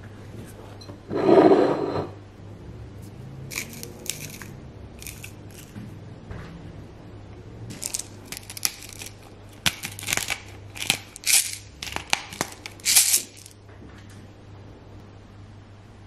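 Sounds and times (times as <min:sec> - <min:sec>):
pepper mill grinding: 0:03.5 - 0:05.8, 0:07.7 - 0:13.6.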